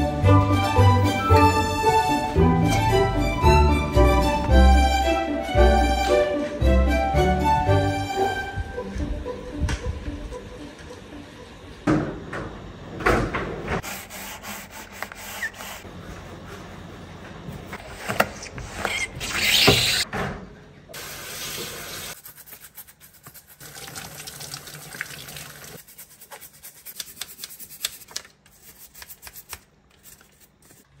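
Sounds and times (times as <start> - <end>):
tap water running over filter: 23.6 - 25.8.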